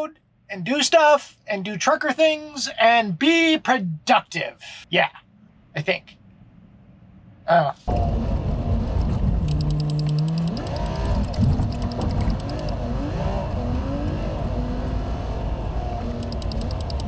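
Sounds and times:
low road rumble: 5.1 - 17.0
fast high ticking: 16.2 - 17.0.

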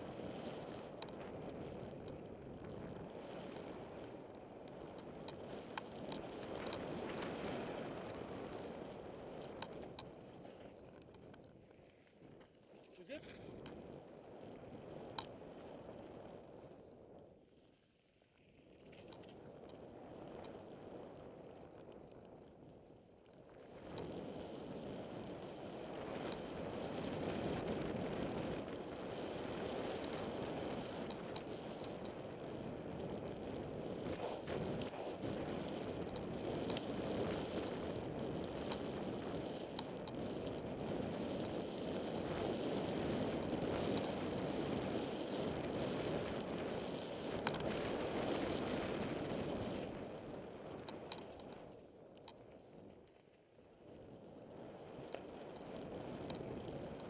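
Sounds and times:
bike tyres rolling over gravel: 0.0 - 57.0
wind on microphone: 23.5 - 53.0.

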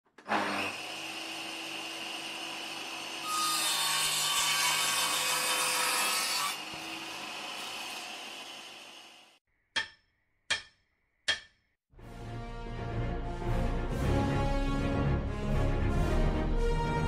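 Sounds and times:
saw cutting through wood: 0.2 - 9.4.

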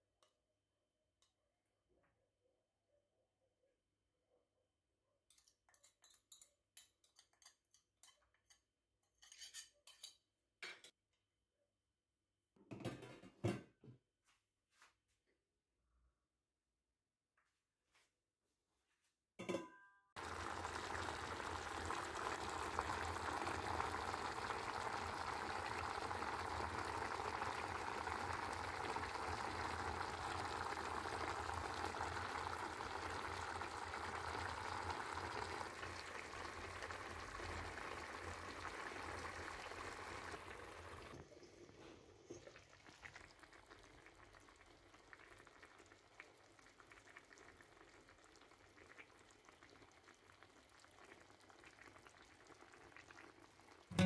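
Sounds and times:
sauce simmering in a pan: 20.2 - 54.0.

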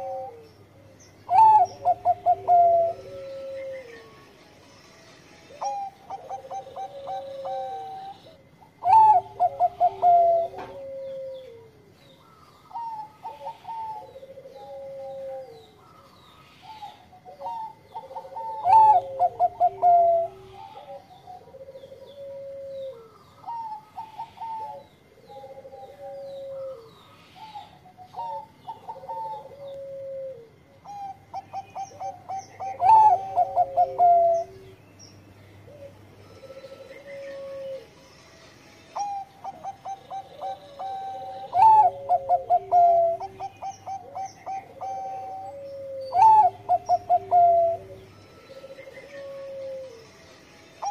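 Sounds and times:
dove cooing song: 0.0 - 4.4, 5.5 - 38.2, 38.9 - 50.9.

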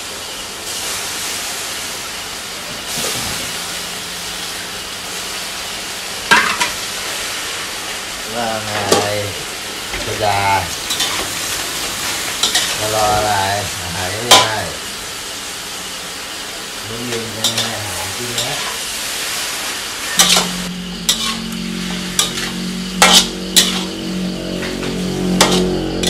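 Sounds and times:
greens sizzling in a wok: 0.0 - 26.0
steady low hum: 8.2 - 26.0
metal spatula scraping a pan: 10.8 - 12.9, 17.1 - 18.9, 20.0 - 24.2, 24.8 - 26.0.

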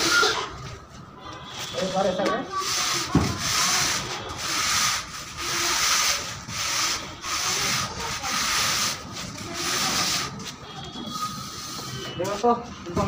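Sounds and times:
straightedge scraping wet plaster: 2.6 - 10.4.

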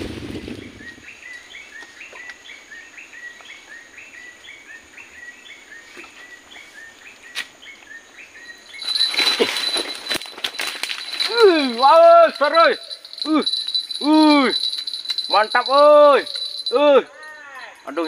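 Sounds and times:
faint high forest hum: 0.0 - 18.0
bird chirping: 0.3 - 10.2.

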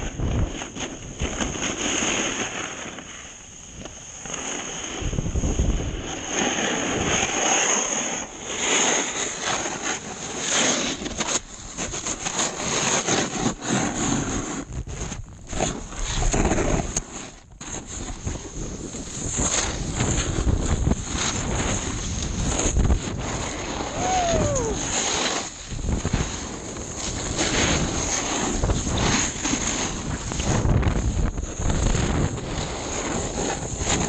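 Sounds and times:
wind rushing over microphone: 0.0 - 1.9, 4.9 - 7.5, 14.1 - 34.0
snowboard hissing over snow: 1.5 - 11.0, 11.7 - 34.0.

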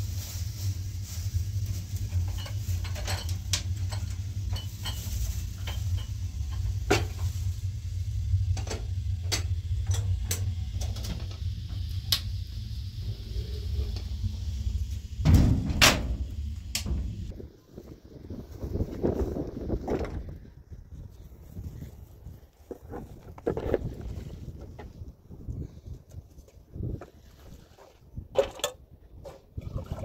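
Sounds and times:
steady low rumble: 0.0 - 27.0
pots and metal tray clattering: 2.0 - 7.3
kitchenware clinking: 2.2 - 6.7.

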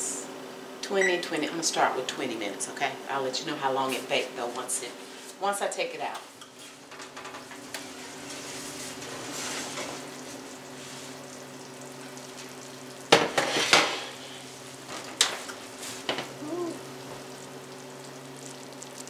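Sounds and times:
casserole sizzling: 6.4 - 19.0.

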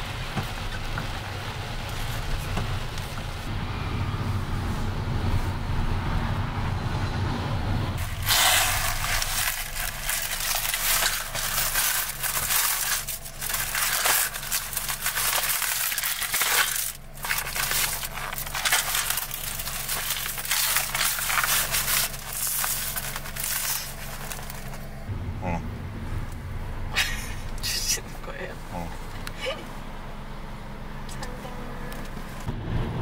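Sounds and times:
steady low hum: 1.4 - 32.7
packing paper crackling: 8.0 - 24.9.

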